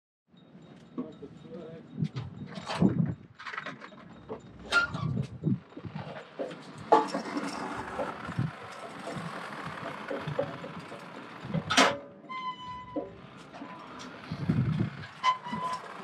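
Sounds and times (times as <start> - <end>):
metal clanks of engine hoist: 0.4 - 16.0
short high squeal: 12.2 - 13.1, 15.2 - 16.0.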